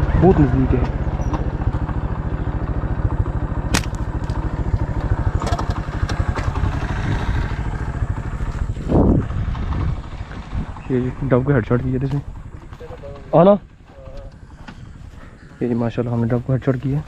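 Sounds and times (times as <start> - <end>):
vehicle engine idling: 0.0 - 17.0
slingshot snap: 3.7 - 4.4.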